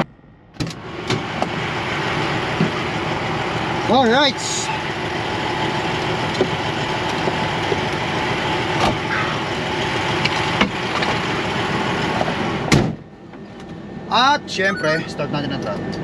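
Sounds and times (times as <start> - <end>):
diesel truck engine idling: 0.0 - 16.0
truck door slamming: 12.7 - 13.0.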